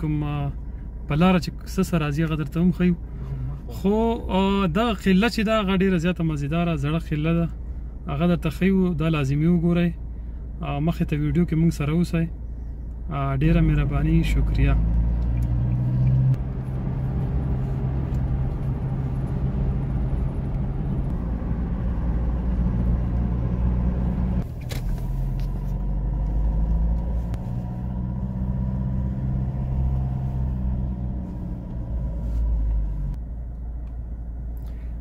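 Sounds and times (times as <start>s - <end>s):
car engine and road noise: 0.0s - 35.0s.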